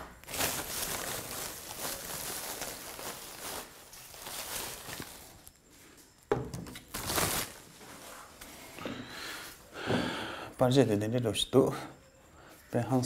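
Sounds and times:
plastic wrapping crinkling: 0.0s - 5.7s, 6.7s - 8.4s.

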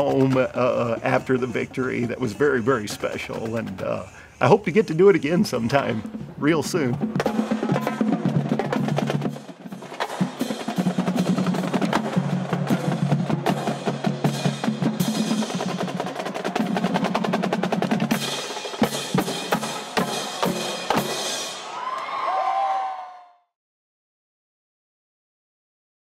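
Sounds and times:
snare drum rolls: 0.0s - 4.1s, 5.4s - 21.8s
bass drums: 5.3s - 21.3s.

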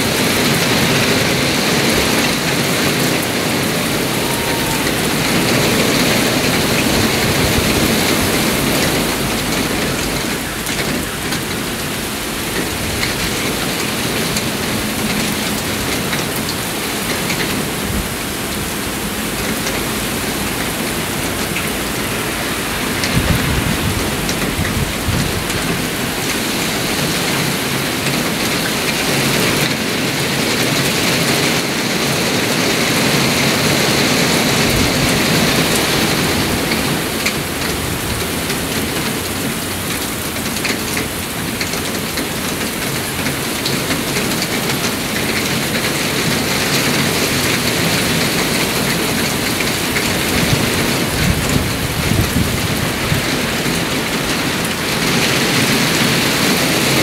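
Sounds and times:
thunder rumbling: 0.0s - 16.4s, 19.3s - 28.4s
heavy rain: 0.0s - 57.0s.

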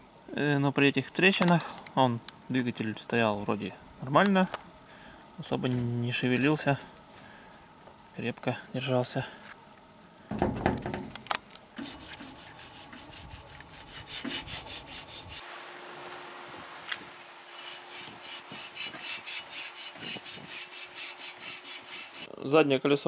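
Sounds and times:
faint steady hum: 0.0s - 23.0s
hand rubbing strokes: 11.8s - 15.4s, 16.8s - 22.3s.

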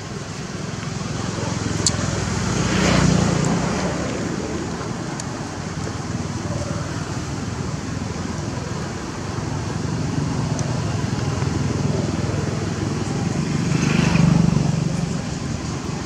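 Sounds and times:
motor vehicle passing by: 0.0s - 16.0s
outdoor background noise: 0.0s - 16.0s
sharp ticks: 1.6s - 7.7s.

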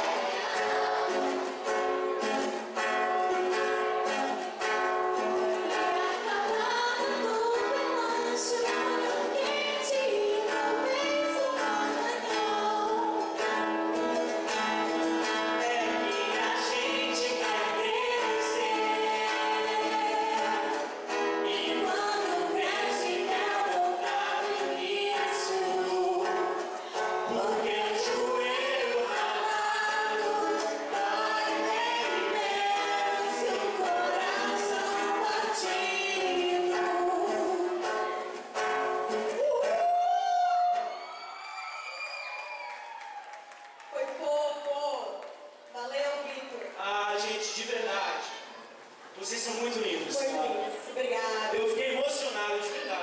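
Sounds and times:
woman singing: 0.0s - 1.8s, 5.1s - 13.6s, 15.3s - 38.4s, 39.2s - 41.0s
acoustic guitar: 0.0s - 53.0s
man singing: 15.6s - 20.4s.

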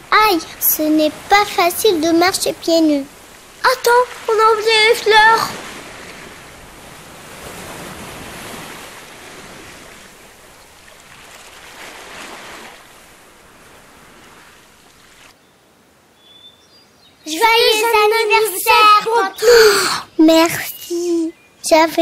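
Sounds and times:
sea waves washing on shore: 0.0s - 16.0s.

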